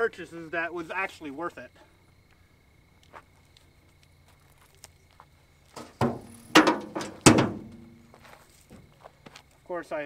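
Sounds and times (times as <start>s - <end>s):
landing net clanking in truck bed: 5.8s - 8.0s.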